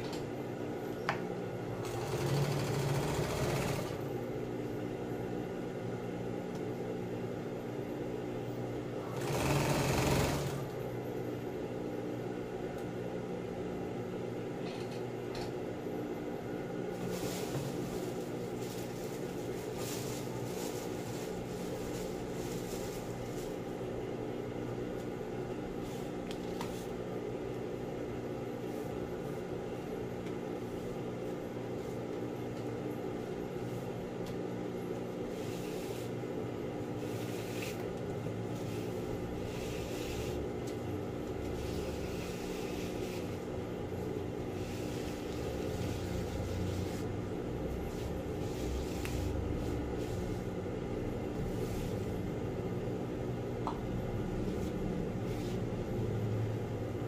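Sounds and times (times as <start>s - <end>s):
sewing machine motor humming: 1.8s - 4.1s, 9.0s - 10.8s
plastic sheet rustling: 16.9s - 23.7s.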